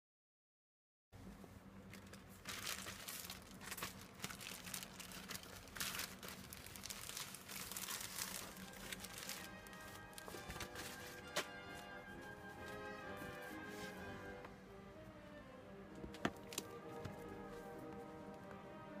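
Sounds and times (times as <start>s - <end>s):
plastic bag crinkling: 1.9s - 11.6s.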